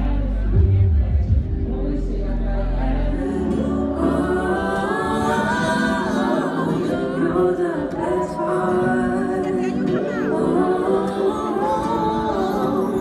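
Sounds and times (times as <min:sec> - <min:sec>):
deep bass: 0:00.0 - 0:04.4
singing with gliding notes: 0:00.0 - 0:13.0.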